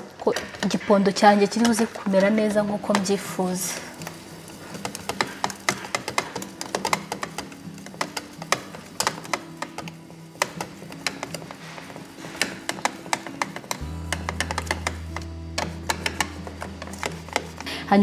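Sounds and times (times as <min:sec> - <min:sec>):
background music: 0:00.0 - 0:18.0
whisk tapping glass dish: 0:04.8 - 0:17.7.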